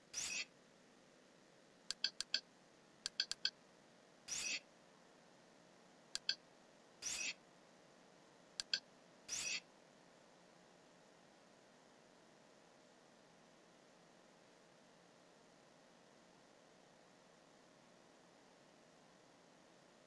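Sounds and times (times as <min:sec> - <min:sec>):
short pitched menu clicks: 0:01.9 - 0:02.4, 0:03.1 - 0:03.5, 0:06.2 - 0:06.4, 0:08.6 - 0:09.6.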